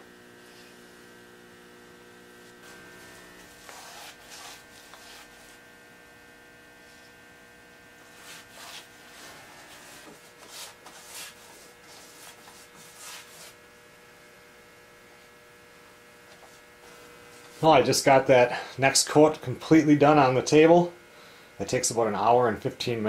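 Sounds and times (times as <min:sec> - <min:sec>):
electrical mains hum: 0:00.0 - 0:23.0
paintbrush swishing on wood: 0:03.4 - 0:05.6, 0:08.0 - 0:13.6.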